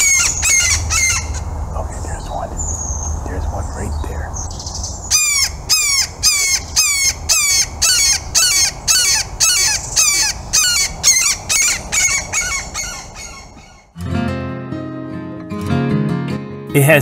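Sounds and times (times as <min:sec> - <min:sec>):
hawk screaming: 0:00.0 - 0:01.5.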